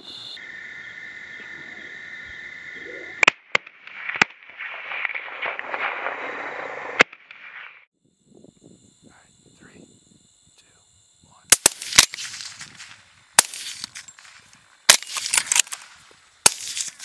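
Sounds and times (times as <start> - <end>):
crickets trilling: 0.0 - 7.0, 7.9 - 17.0
suppressed rifle shot cracks: 3.2 - 7.7, 11.5 - 17.0.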